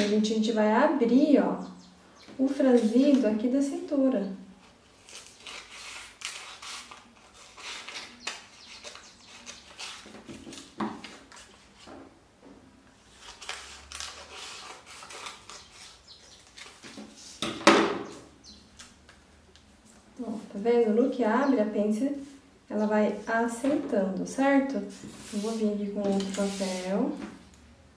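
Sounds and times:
paper rustling and crackling: 4.6 - 11.9, 13.0 - 17.4, 24.8 - 27.1.

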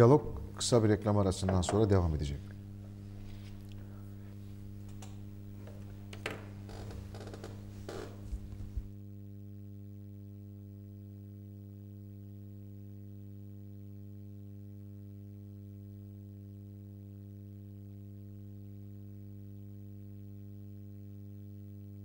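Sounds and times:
low electrical hum: 0.0 - 22.0.

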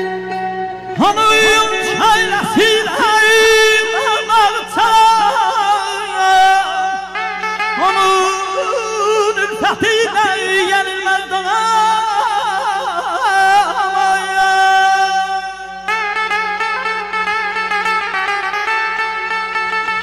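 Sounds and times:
man singing into a microphone: 0.9 - 16.6.

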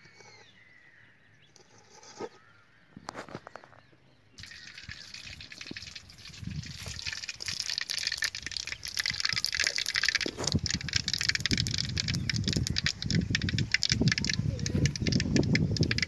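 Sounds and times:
oil sizzling and crackling: 4.4 - 16.0.

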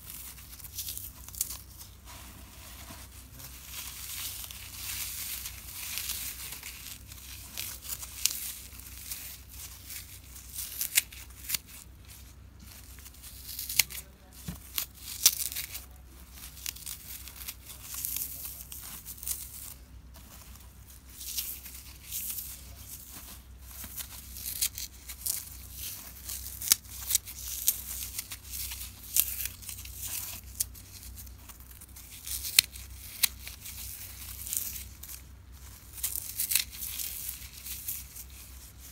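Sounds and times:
floral foam crunching: 0.0 - 38.9.

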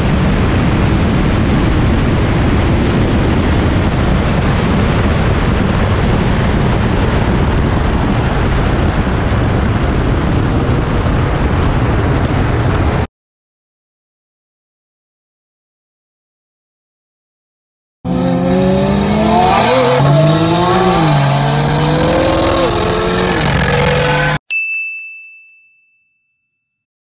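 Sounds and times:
loud wind rush: 0.0 - 13.1, 18.1 - 24.4.

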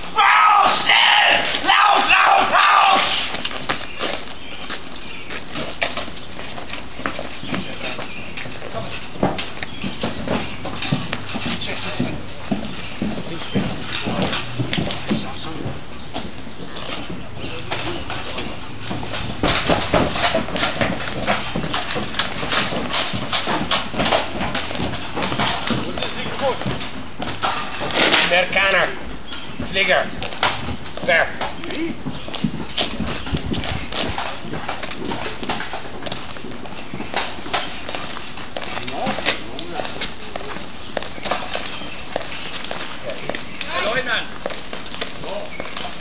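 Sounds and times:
men shouting: 0.0 - 3.3
footsteps on hard pavement: 0.0 - 46.0
open-air background noise: 0.0 - 46.0.

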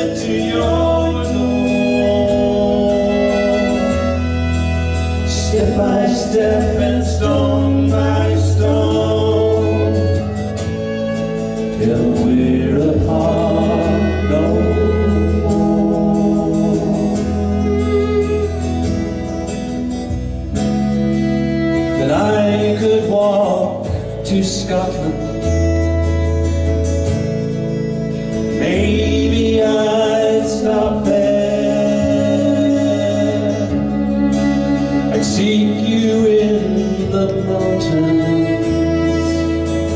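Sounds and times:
man singing into a microphone: 0.0 - 10.4, 11.7 - 18.4, 21.9 - 25.7, 28.5 - 39.9
live instrumental backing: 0.0 - 39.9.

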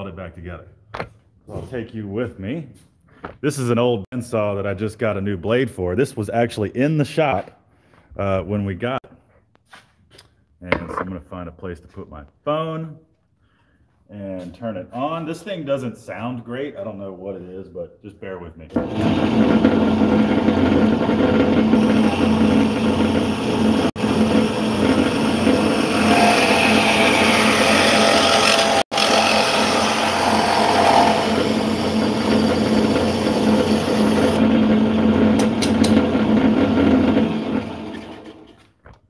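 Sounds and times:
bandsaw humming: 18.8 - 38.3
bandsaw cutting metal pipe: 18.8 - 38.5.

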